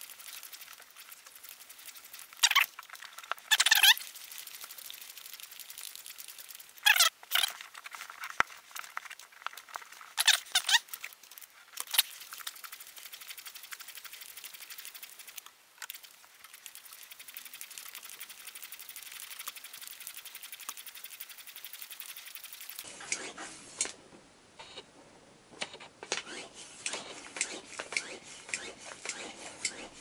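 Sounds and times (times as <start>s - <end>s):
squeaky ball pump strokes: 0.0s - 4.4s, 6.8s - 8.0s, 9.6s - 12.8s, 26.2s - 30.0s
faint fast ticking: 0.0s - 7.1s, 9.1s - 22.9s.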